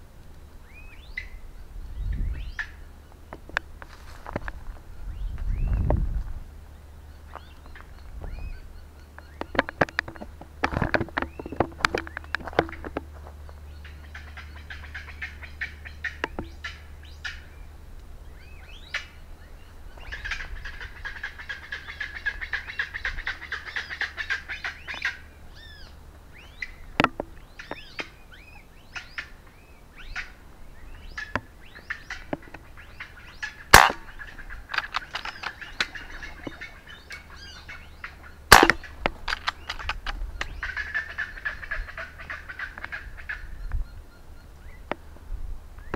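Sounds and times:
flock of birds calling: 0:00.0 - 0:45.9
air rifle shots: 0:33.7 - 0:35.8, 0:38.5 - 0:40.2.

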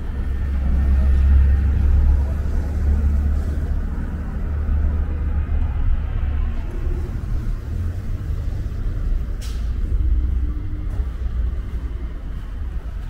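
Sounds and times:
city street rumble: 0:00.0 - 0:13.0.

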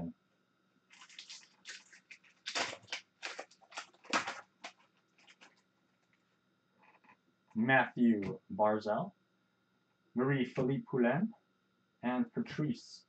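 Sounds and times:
foil wrapper tearing and crinkling: 0:00.9 - 0:05.6.

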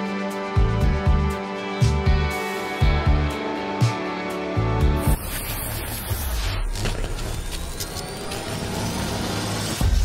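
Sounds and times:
background music with low beat: 0:00.0 - 0:05.4.

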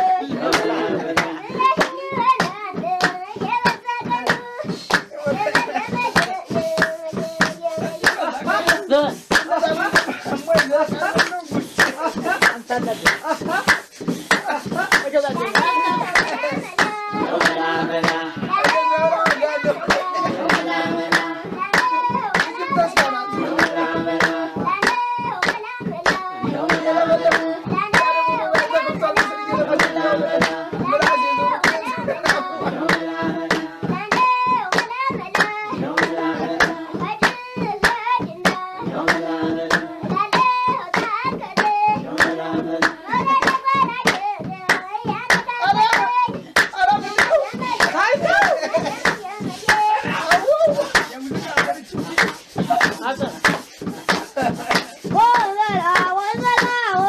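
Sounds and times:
group singing: 0:00.0 - 0:57.0
hand clapping: 0:00.0 - 0:57.0.

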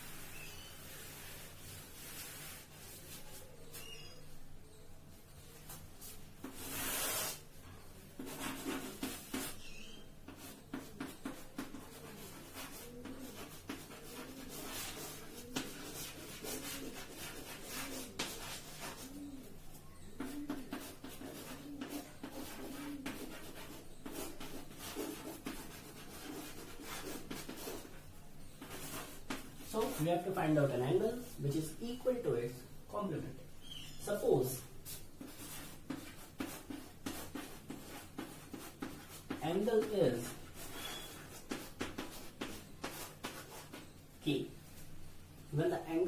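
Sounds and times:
chalk scratching on blackboard: 0:06.0 - 0:07.4, 0:08.2 - 0:19.4, 0:20.1 - 0:28.0, 0:28.6 - 0:31.4, 0:34.8 - 0:44.0.

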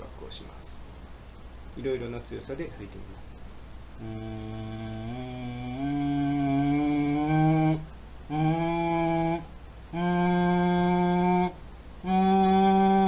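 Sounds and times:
man humming through a straw: 0:04.0 - 0:13.0.

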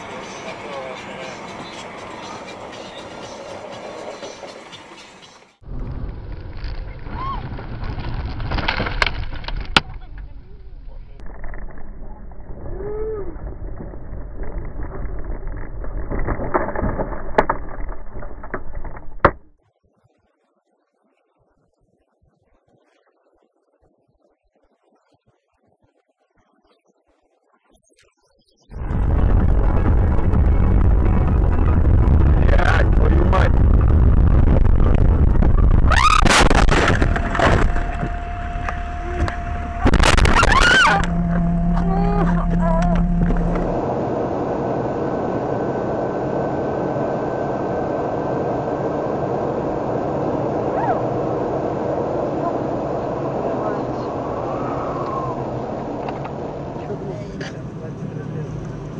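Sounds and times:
muffled in-car road noise: 0:00.0 - 0:19.6, 0:28.6 - 0:58.9
snow and debris striking car: 0:35.9 - 0:43.8.

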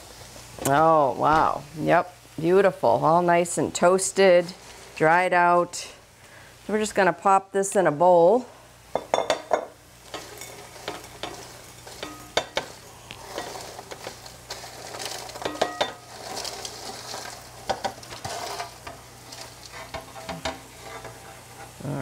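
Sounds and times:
crumbs tumbling into glass bowl: 0:10.1 - 0:19.9
fork scraping bread off metal sheet: 0:10.1 - 0:21.8.

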